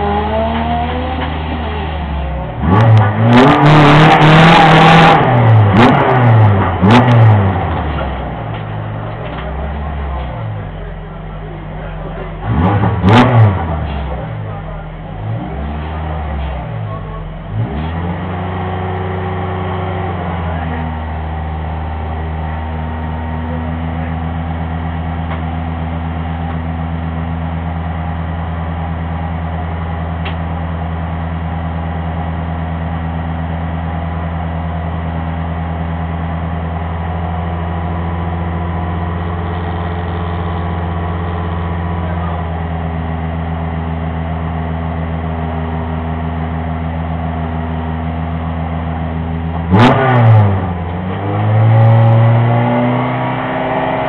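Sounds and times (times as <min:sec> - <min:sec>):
race car engine revving and idling: 0:00.0 - 0:54.0.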